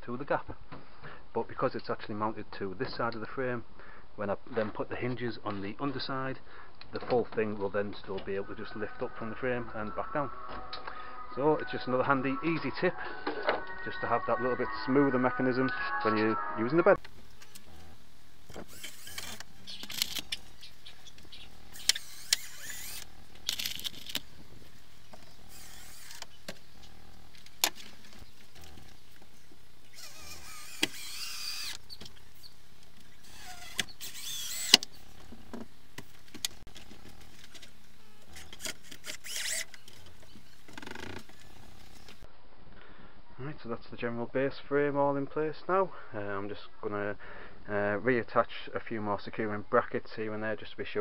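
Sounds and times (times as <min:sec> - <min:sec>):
cordless drill driving screws: 0:18.5 - 0:20.2, 0:21.8 - 0:24.1, 0:25.4 - 0:26.4, 0:29.9 - 0:32.0, 0:33.2 - 0:35.0, 0:38.2 - 0:40.2.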